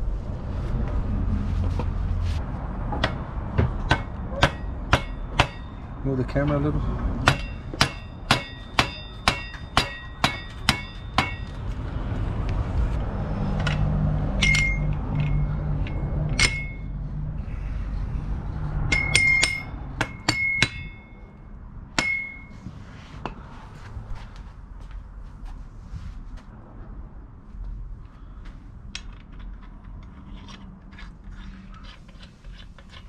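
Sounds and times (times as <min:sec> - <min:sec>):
metallic clinks: 0:14.4 - 0:16.9, 0:18.9 - 0:21.3.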